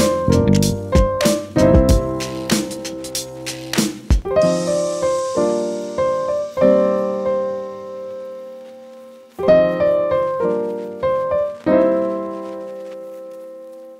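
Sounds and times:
gentle piano chords: 0:00.0 - 0:13.9.

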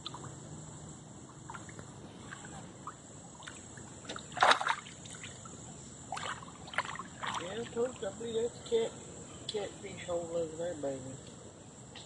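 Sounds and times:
fish splashing at water surface: 0:01.5 - 0:05.5, 0:06.1 - 0:07.8.

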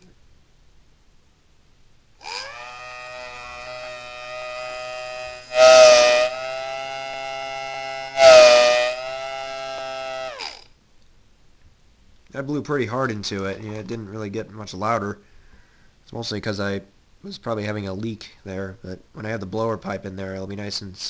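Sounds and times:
breath blown into siren: 0:02.2 - 0:10.6
siren winding down: 0:02.2 - 0:10.6
electromechanical siren wailing: 0:02.2 - 0:10.7.

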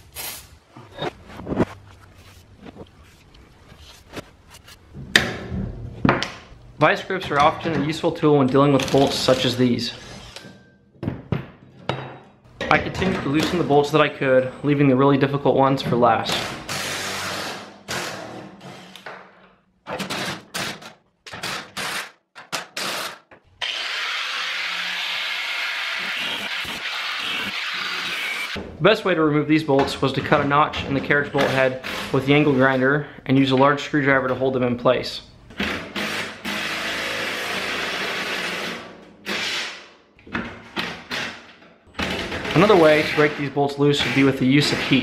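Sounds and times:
angle grinder cutting metal: 0:22.8 - 0:28.6.

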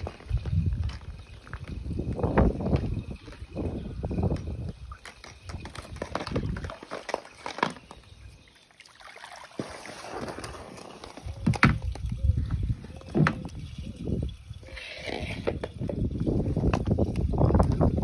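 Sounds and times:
water sloshing: 0:04.4 - 0:12.0.

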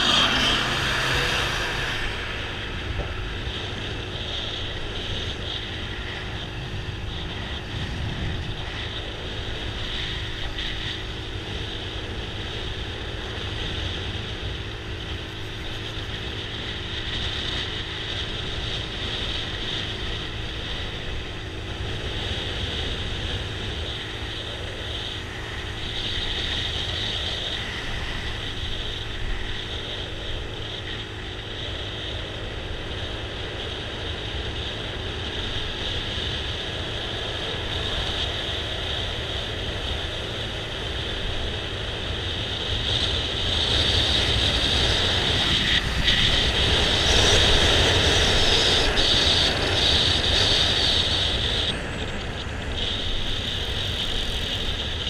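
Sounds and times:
motor scooter engine drone: 0:00.0 - 0:55.0
road and wind noise: 0:00.0 - 0:55.0.

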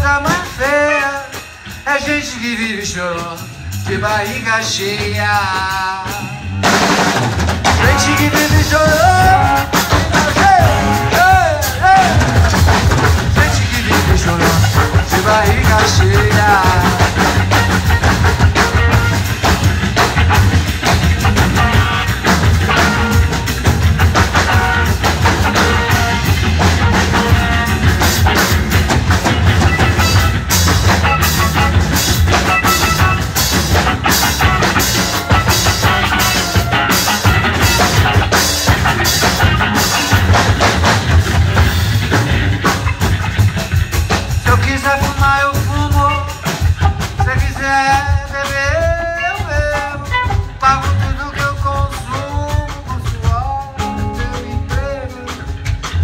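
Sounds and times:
drums: 0:00.0 - 0:56.0
electric guitars: 0:00.0 - 0:56.0.

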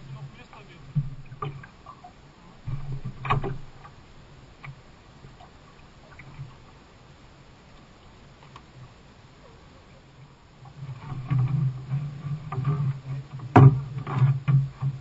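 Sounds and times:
water lapping against canoe hull: 0:00.0 - 0:15.0
faint ticks: 0:02.8 - 0:06.8, 0:07.7 - 0:09.6
knock and splash: 0:12.5 - 0:15.0.

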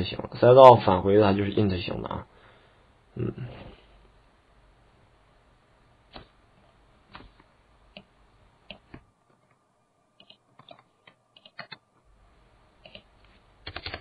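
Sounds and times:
typing on computer keyboard: 0:12.8 - 0:14.0.

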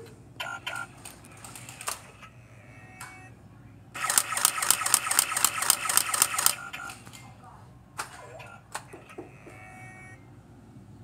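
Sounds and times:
rapid sharp electronic clicks: 0:04.0 - 0:07.0
toy gun electronic beeps: 0:04.0 - 0:07.0.

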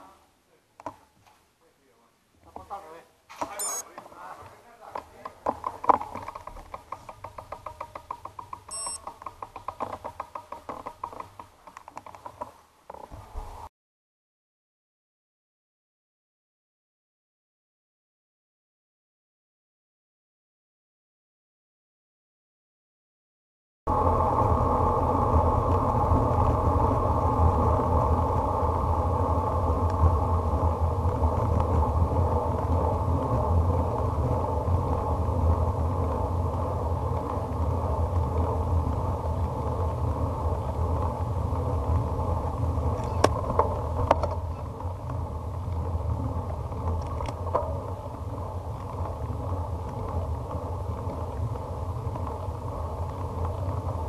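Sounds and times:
bicycle freewheel ticking: 0:05.1 - 0:12.4, 0:24.0 - 0:54.0
wind and road rumble: 0:23.9 - 0:54.0.

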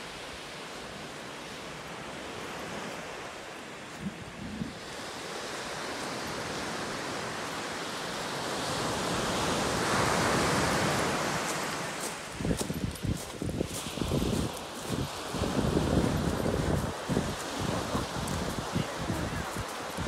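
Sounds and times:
ocean surf on beach: 0:00.0 - 0:20.0
wind buffeting microphone: 0:03.9 - 0:05.1, 0:09.1 - 0:20.0.

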